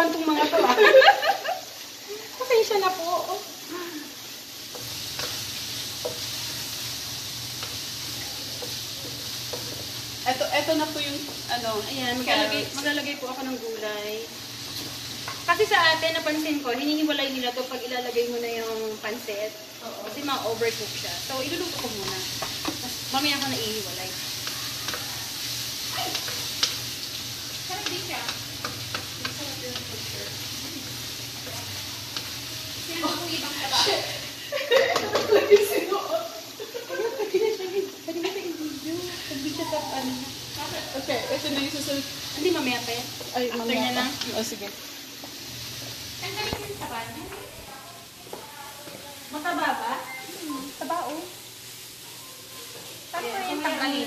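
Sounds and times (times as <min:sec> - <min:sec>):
food sizzling in a wok: 0:00.0 - 0:54.0
spatula scraping a pan: 0:04.6 - 0:12.6
spatula clicking against pan: 0:21.6 - 0:23.6, 0:24.3 - 0:25.1, 0:26.1 - 0:26.8, 0:27.8 - 0:30.0.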